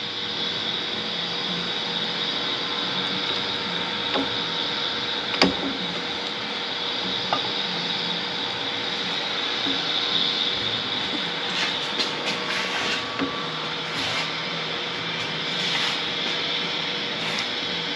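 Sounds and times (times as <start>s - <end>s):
steady machine hum: 0.0s - 17.9s.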